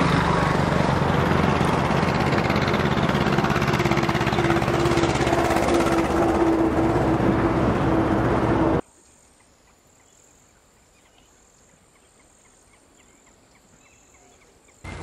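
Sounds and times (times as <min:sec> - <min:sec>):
motor running with loud hum: 0:00.0 - 0:08.8.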